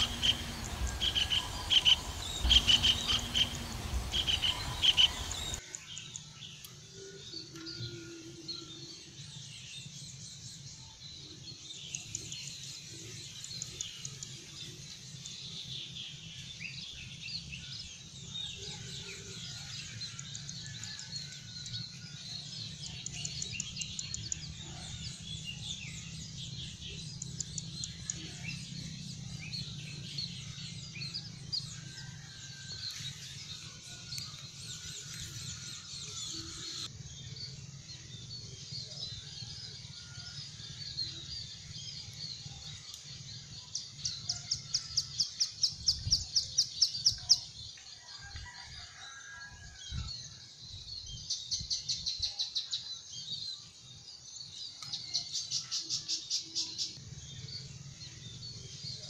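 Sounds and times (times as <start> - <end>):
small birds chirping: 0.0 - 6.3.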